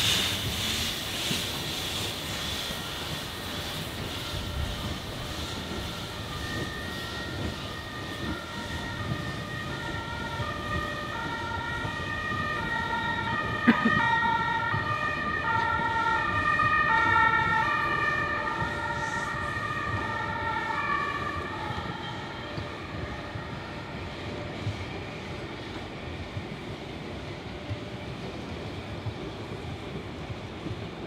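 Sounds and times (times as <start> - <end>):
train wheels squealing: 0.0 - 29.6.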